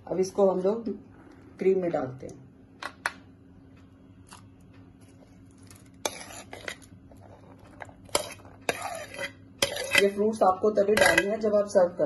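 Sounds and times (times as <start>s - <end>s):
faint steady hum: 0.0s - 12.0s
metal spoon scraping ceramic plate: 6.0s - 6.9s, 7.6s - 10.2s, 11.0s - 11.4s.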